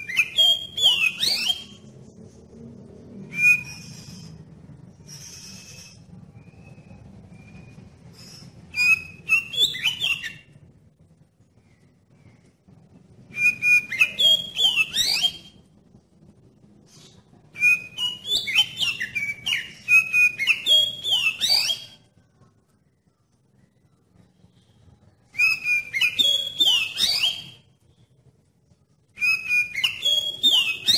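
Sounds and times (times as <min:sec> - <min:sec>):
bird singing whistled phrases: 0:00.0 - 0:01.9, 0:03.3 - 0:04.4, 0:05.0 - 0:10.5, 0:13.3 - 0:15.6, 0:17.6 - 0:22.1, 0:25.3 - 0:27.7, 0:29.2 - 0:30.9.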